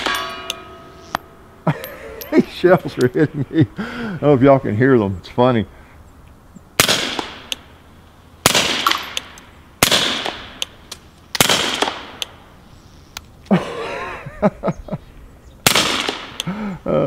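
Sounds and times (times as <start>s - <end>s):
shell cases clinking: 0.0s - 3.2s, 8.7s - 9.5s
suppressed gunshots: 6.8s - 7.6s, 8.4s - 10.7s, 11.4s - 12.2s, 15.6s - 16.4s.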